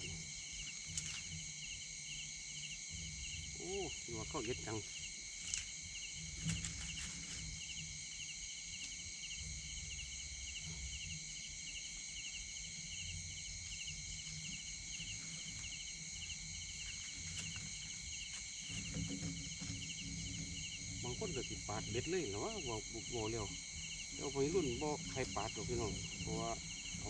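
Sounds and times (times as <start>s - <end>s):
insect chorus chirring: 0.0s - 27.0s
low rumble: 18.7s - 27.0s.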